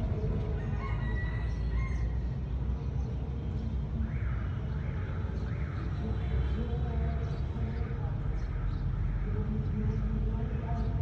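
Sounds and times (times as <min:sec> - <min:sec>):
rooster crowing: 0:00.6 - 0:02.2.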